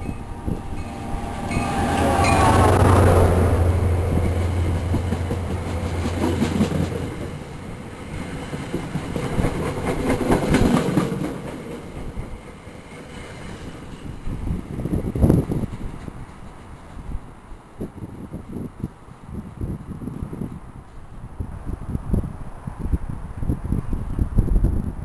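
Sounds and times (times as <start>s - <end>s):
diesel locomotive engine drone: 0.0s - 24.3s
train wheels clattering over rail joints: 8.1s - 17.1s.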